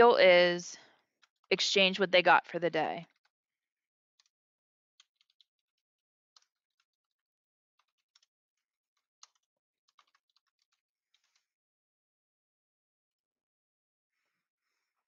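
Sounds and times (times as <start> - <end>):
faint keyboard typing: 7.8 - 8.3, 9.0 - 11.5.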